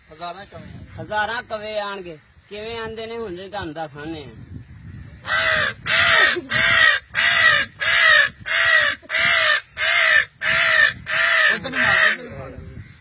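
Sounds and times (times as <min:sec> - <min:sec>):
man imitating crow cawing: 0:05.2 - 0:12.4.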